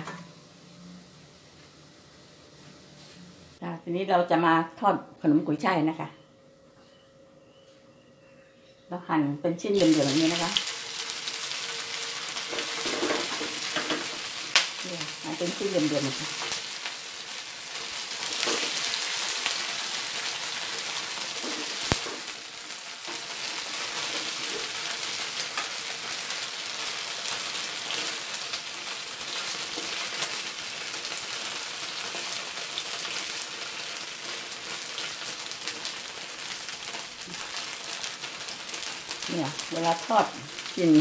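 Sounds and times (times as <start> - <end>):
food sizzling in oil: 9.7 - 41.0.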